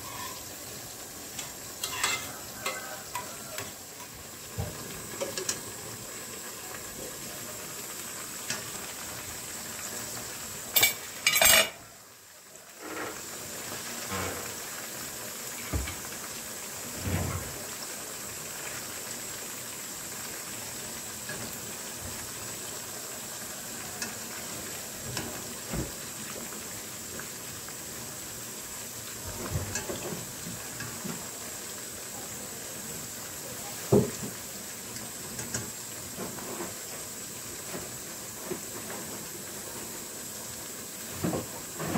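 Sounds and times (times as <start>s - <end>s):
skimmer scraping against pan: 0.0s - 0.5s, 1.8s - 3.7s
vegetables sizzling in hot oil: 0.0s - 41.9s.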